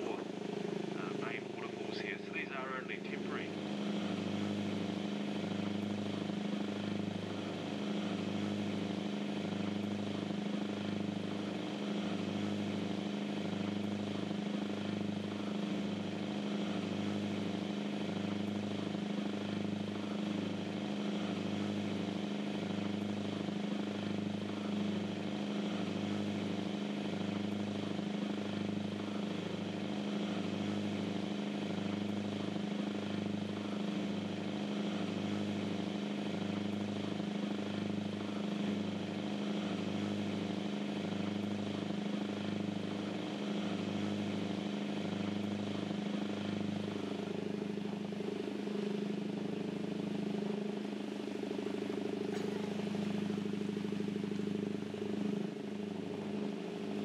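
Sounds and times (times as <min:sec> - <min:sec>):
boat engines droning: 0:00.0 - 0:57.0.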